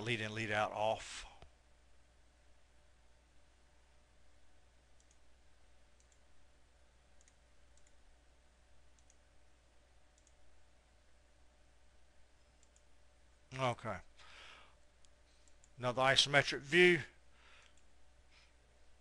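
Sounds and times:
computer mouse clicks: 5.0s - 5.2s, 6.0s - 6.3s, 7.2s - 8.0s, 8.9s - 9.2s, 10.1s - 10.4s, 12.6s - 12.9s, 15.0s - 15.8s.

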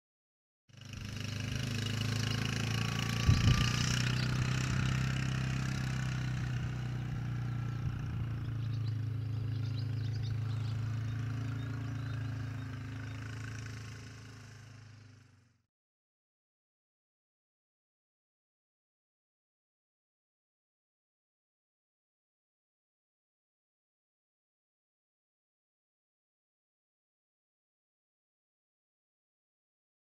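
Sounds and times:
quad bike engine running: 0.7s - 15.7s.

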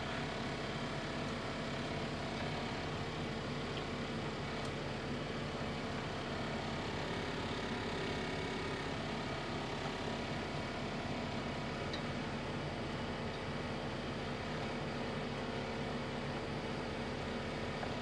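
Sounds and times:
pot of soup boiling: 0.1s - 18.0s.

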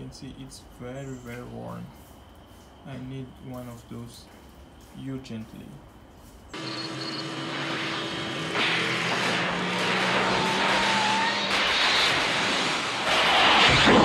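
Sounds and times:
crackling electrical buzz: 6.5s - 14.0s
car engine running hard: 6.6s - 14.0s
sudden loud burst: 6.6s - 14.0s.

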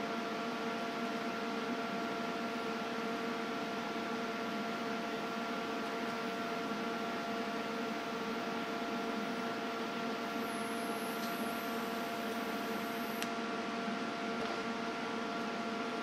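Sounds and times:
welder electrical hum with hiss: 0.0s - 16.0s
faint high whine: 10.2s - 13.3s.

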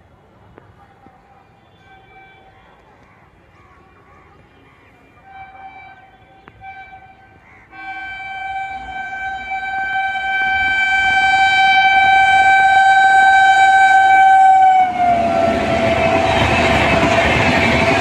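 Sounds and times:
train coaches rushing past: 4.4s - 18.0s
locomotive horn blast: 5.3s - 18.0s.

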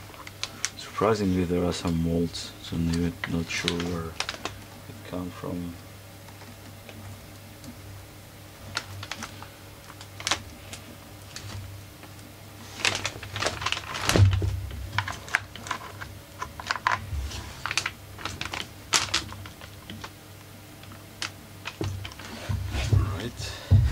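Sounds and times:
plastic parts clicking and rattling: 2.8s - 4.6s, 8.7s - 11.6s, 12.7s - 20.2s, 20.8s - 22.3s
heavy thump: 22.5s - 23.9s.

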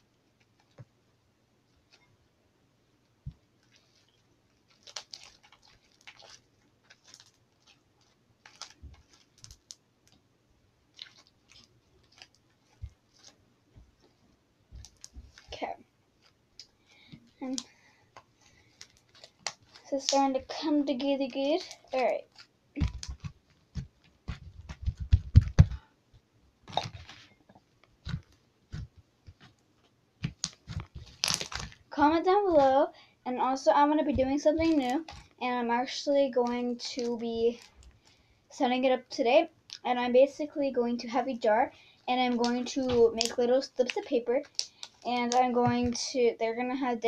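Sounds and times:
slime squelching and popping: 3.6s - 10.2s, 10.9s - 13.4s, 14.7s - 25.8s, 30.2s - 32.9s, 34.0s - 35.4s, 42.1s - 46.0s
soft low thumps: 22.8s - 25.8s, 34.0s - 34.8s.

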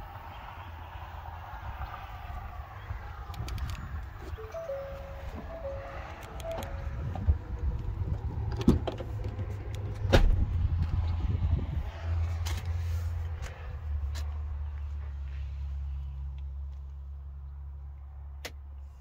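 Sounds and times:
wind rumble on microphone: 0.0s - 4.4s, 6.4s - 12.8s.

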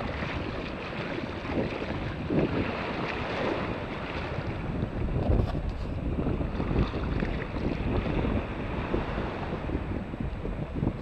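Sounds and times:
small waves washing: 0.0s - 11.0s
wind buffeting microphone: 0.0s - 11.0s.

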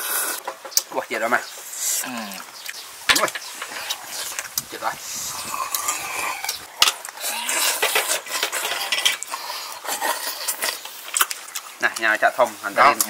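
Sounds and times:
wet slurping: 3.7s - 11.8s.

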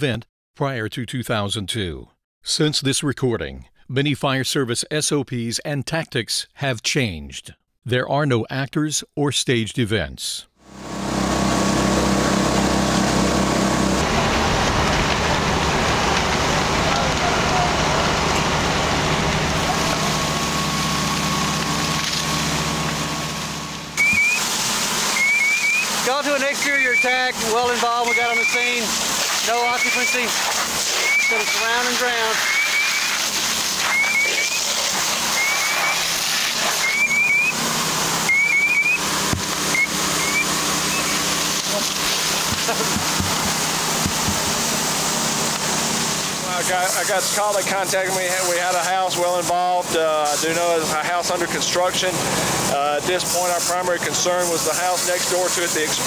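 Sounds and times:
fire engine droning: 10.6s - 56.0s
high chirps: 24.0s - 24.5s, 25.1s - 28.8s, 29.4s - 30.3s, 31.0s - 33.2s, 33.8s - 36.1s, 36.7s - 37.6s, 38.2s - 41.3s.

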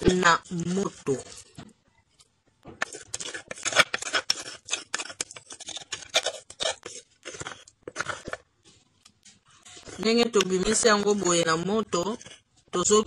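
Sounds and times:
rasping scrapes in a mortar: 2.8s - 13.0s.

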